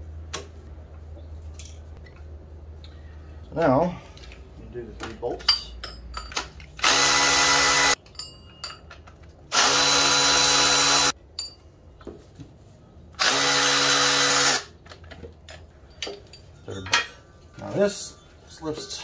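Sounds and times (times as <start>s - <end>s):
power tool spinning bolts: 6.8s - 8.0s, 9.5s - 11.2s, 13.2s - 14.7s.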